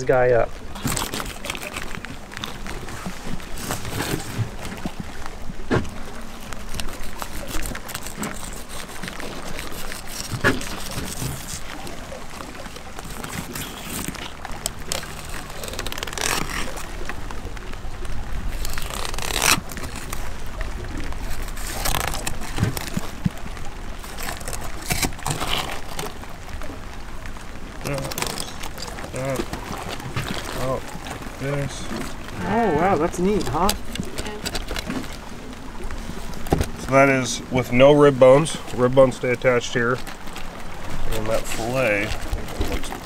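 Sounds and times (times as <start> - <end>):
knife scraping fish bones: 6.8 - 11.6.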